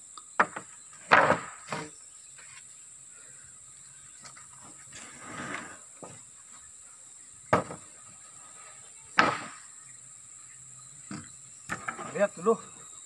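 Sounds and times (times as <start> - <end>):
wooden planks knocking: 0.4 - 1.9, 7.5 - 7.9
planks scraping: 0.4 - 2.6, 4.2 - 6.3, 7.5 - 8.0, 11.1 - 12.5.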